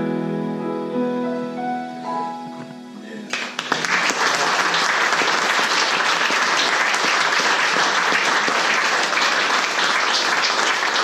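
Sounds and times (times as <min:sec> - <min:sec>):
audience applauding: 0:03.3 - 0:11.0.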